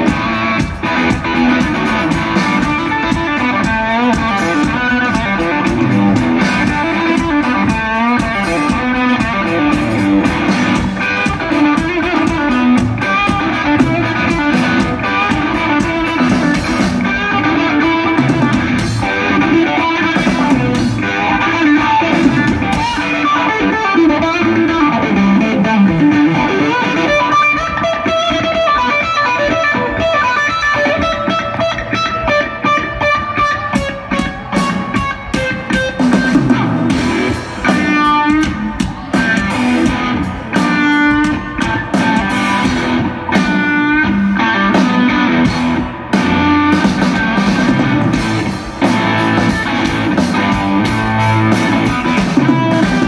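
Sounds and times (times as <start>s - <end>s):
drum and cymbal hits: 0.0s - 23.2s, 33.8s - 53.0s
live rock music over pa: 0.0s - 53.0s.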